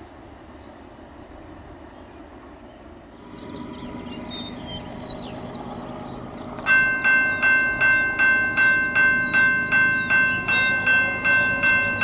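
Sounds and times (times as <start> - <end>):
birds chirping and warbling: 0.0 - 12.0
diesel locomotives humming: 0.1 - 12.0.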